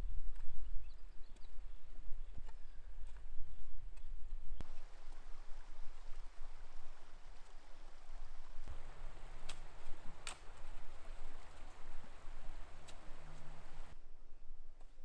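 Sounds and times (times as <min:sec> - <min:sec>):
floodwater rushing: 0:04.6 - 0:14.0
low steady hum: 0:04.6 - 0:14.5.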